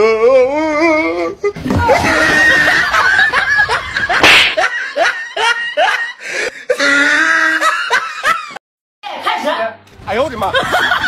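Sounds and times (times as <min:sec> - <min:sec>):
person laughing hard: 0:01.8 - 0:08.6
sharp smack: 0:04.2 - 0:04.6.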